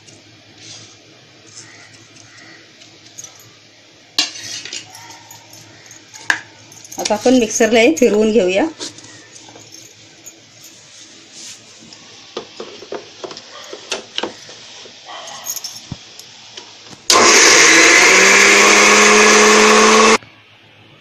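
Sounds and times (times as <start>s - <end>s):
mixer grinder motor whine: 17.1s - 20.2s.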